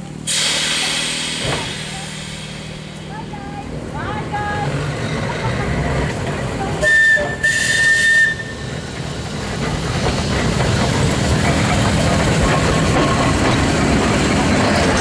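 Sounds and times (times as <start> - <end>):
tram rolling on rails: 0.0 - 15.0
high whistle toot: 6.8 - 8.6.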